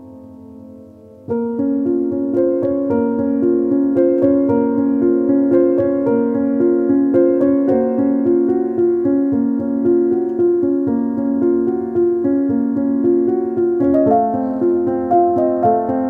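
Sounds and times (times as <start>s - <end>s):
calm keyboard music: 0.0s - 16.0s.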